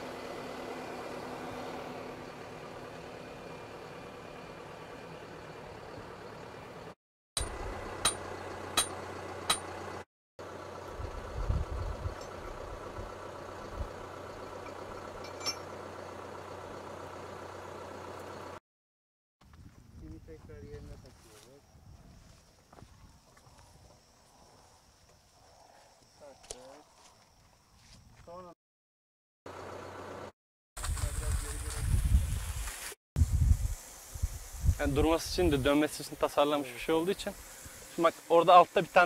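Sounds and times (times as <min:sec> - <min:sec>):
tractor engine idling: 0:00.0 - 0:18.6.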